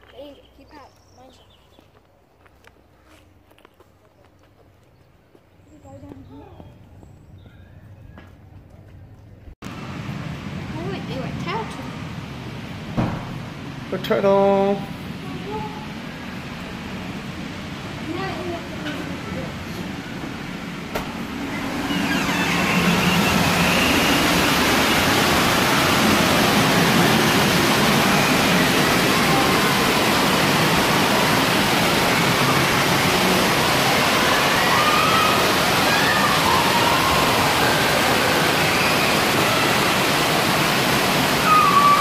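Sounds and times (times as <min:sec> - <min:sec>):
distant voices: 0:00.0 - 0:42.0
splashing water rushing: 0:09.7 - 0:42.0.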